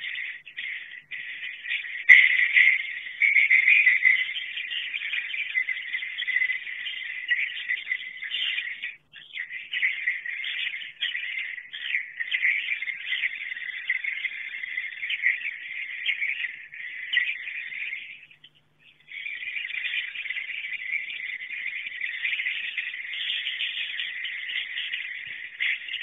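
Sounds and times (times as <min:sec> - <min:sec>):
swiftlet chatter of high chirps: 0:00.0 - 0:26.0.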